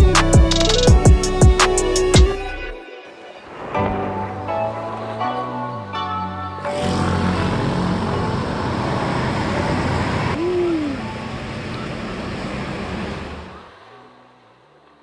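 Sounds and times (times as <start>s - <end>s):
roadside traffic noise: 4.5s - 15.0s.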